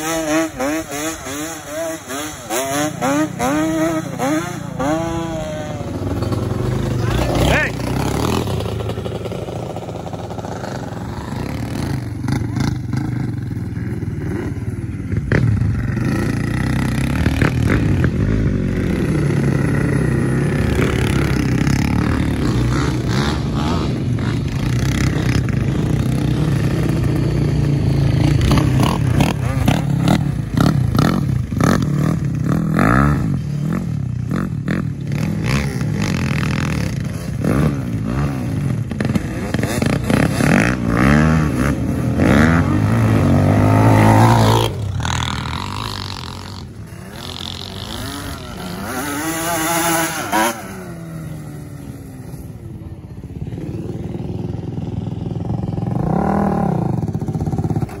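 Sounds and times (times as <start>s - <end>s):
atv engine revving: 0.0s - 58.0s.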